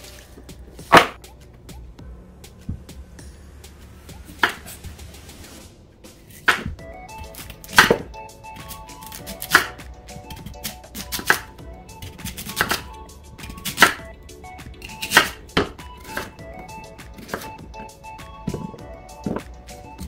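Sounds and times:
knife slicing radish: 4.3s - 5.3s, 6.2s - 14.0s, 14.8s - 16.4s, 17.2s - 17.6s.

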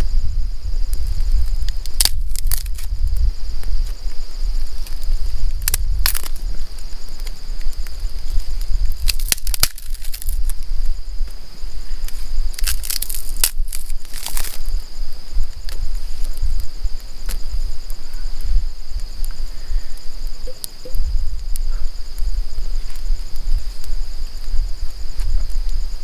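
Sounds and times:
steady low rumble: 0.0s - 26.0s
dry twigs snapping: 1.7s - 2.9s, 4.8s - 6.4s, 8.4s - 10.6s, 12.0s - 14.7s
constant high-pitched tone: 9.9s - 26.0s.

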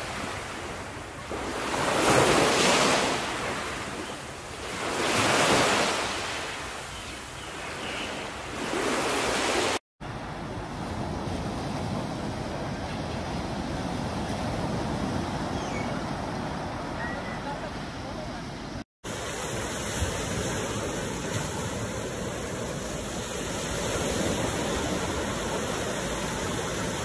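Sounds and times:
small waves washing onto beach: 0.0s - 27.0s
steady hiss of surf: 16.4s - 27.0s.

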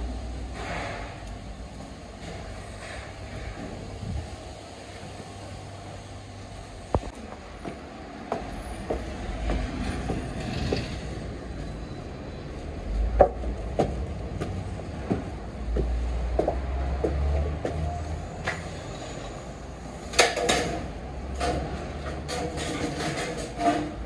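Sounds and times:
footsteps on stairs: 7.0s - 10.9s, 13.2s - 18.6s.

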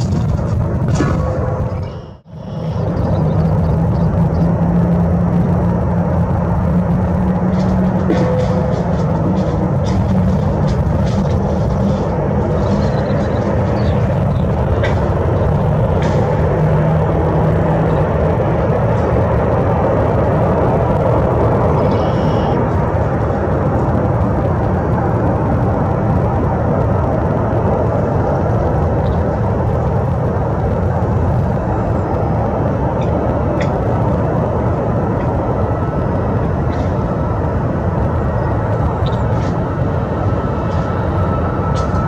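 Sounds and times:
jet engines idling: 0.0s - 42.0s.

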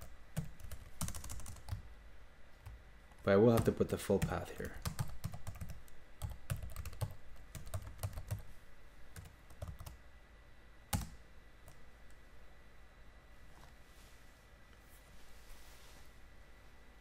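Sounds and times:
computer keyboard typing: 0.0s - 1.9s, 3.5s - 8.5s, 9.2s - 10.0s, 10.9s - 11.8s.

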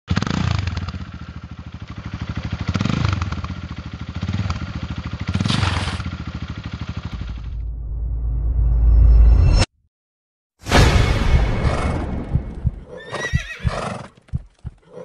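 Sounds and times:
small motorcycle engine puttering: 2.2s - 7.5s
deep low rumble: 11.6s - 12.9s.

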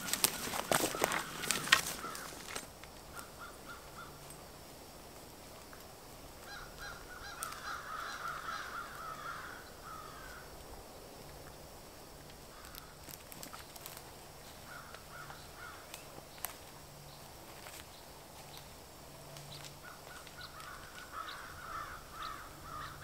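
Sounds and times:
birds calling: 0.0s - 4.3s, 6.4s - 10.4s, 12.5s - 18.7s, 19.4s - 23.0s
footsteps on twigs: 0.0s - 4.4s, 12.5s - 22.8s.

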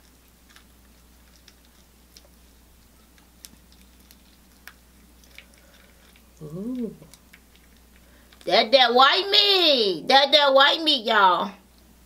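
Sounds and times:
chewing clicks and smacks: 0.0s - 8.5s
low steady hum: 0.0s - 12.0s.

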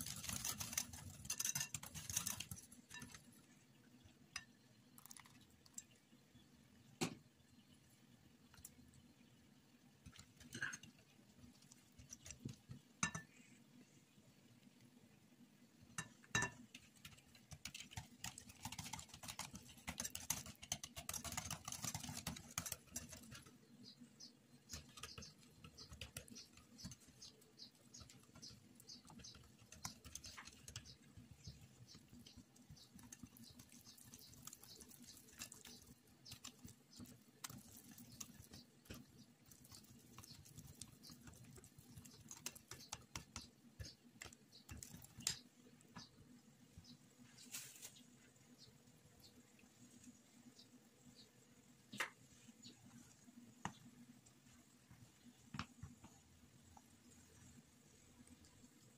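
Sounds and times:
whisk clicking against a bowl: 0.0s - 3.2s, 16.0s - 23.6s, 24.7s - 45.4s.

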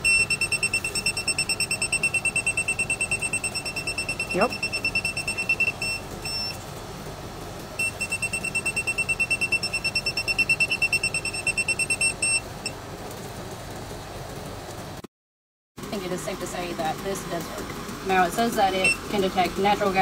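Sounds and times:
gas detector alarm beeping: 0.0s - 6.6s, 7.8s - 12.8s, 18.7s - 19.3s.

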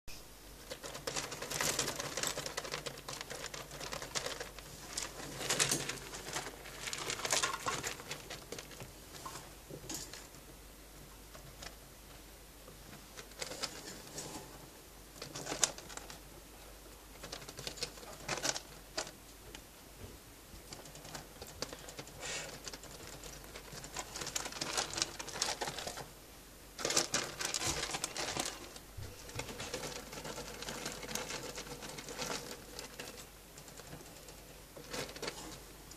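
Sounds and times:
rats rustling in paper bedding: 0.6s - 10.3s, 15.2s - 16.2s, 17.1s - 19.2s, 20.6s - 26.1s, 26.8s - 35.9s.

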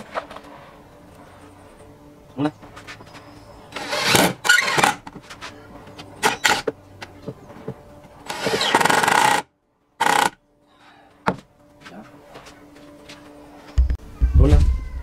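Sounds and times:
cordless drill driving screws: 3.8s - 5.0s, 8.3s - 9.4s, 10.0s - 10.4s.

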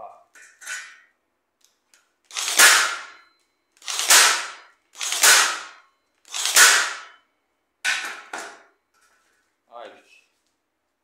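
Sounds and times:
nail gun firing: 2.3s - 3.2s, 3.8s - 7.2s.

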